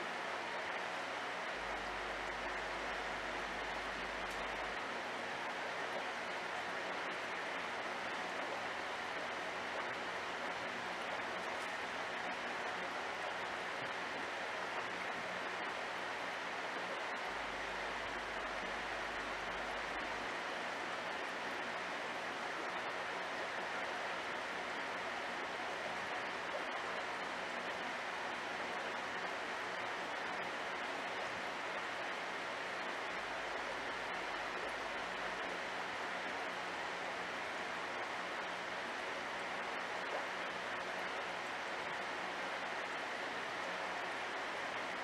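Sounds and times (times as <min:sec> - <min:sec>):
faint low hum: 0:00.0 - 0:45.0
water running in fish tank: 0:00.0 - 0:45.0.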